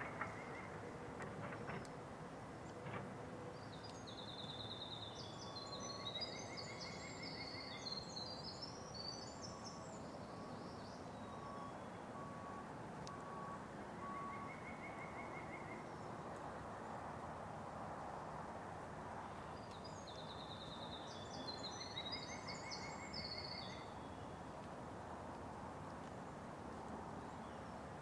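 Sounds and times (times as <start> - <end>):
songbirds singing: 0.0 - 1.8, 3.6 - 12.3, 13.3 - 16.6, 19.4 - 24.7, 27.2 - 27.9
wind in woods: 0.0 - 28.0
faint beep: 11.2 - 14.9.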